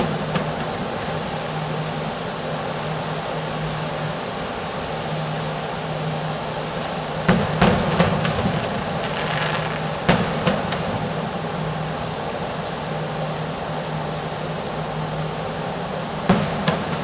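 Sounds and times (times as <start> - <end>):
steady hum and hiss: 0.0 - 17.0
distant fireworks bangs: 7.2 - 11.9, 16.3 - 17.0.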